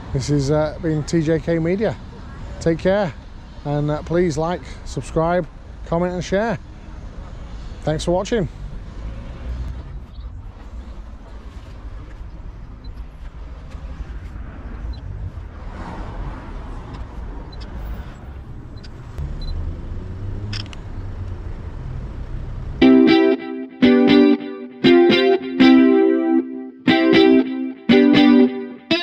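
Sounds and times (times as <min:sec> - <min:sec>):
street traffic rumble: 0:00.0 - 0:22.8.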